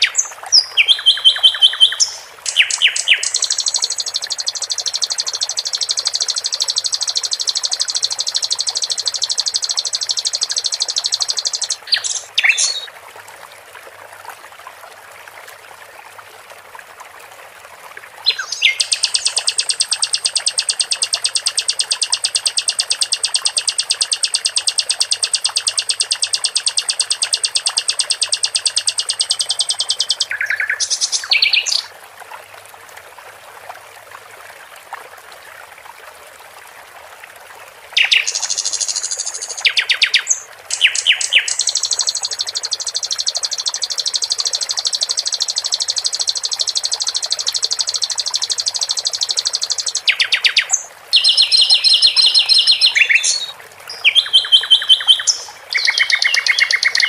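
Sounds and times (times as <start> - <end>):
songbird trilling: 0.0 - 12.9, 18.3 - 31.9, 38.0 - 57.0
trickling water: 0.0 - 57.0.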